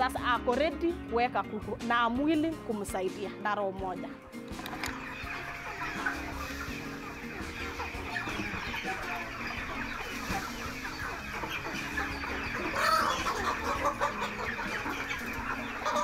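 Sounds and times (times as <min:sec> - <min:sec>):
chickens cheeping and clucking: 0:04.1 - 0:16.0.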